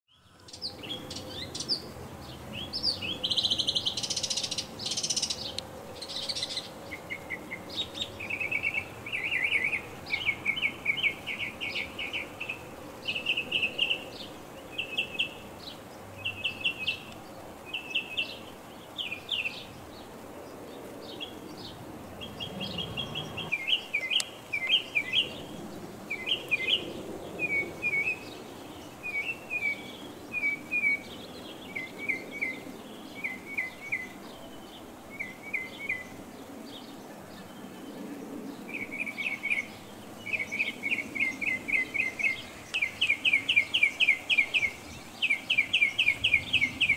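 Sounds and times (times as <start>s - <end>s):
low background noise: 0.1s - 46.9s
small songbirds chirping: 0.1s - 46.9s.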